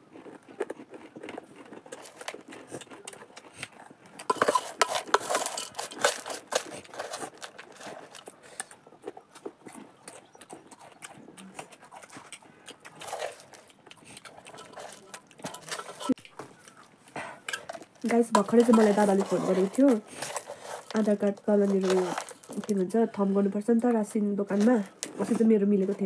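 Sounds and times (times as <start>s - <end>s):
crunchy food chewing: 0.0s - 23.5s
spoons scraping steel bowl: 4.2s - 8.7s, 14.4s - 16.2s, 17.5s - 23.5s.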